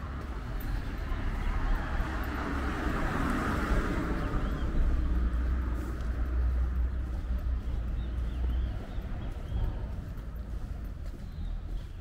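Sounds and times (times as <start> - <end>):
car tyre noise passing: 0.0 - 12.0
steady low rumble: 3.7 - 12.0.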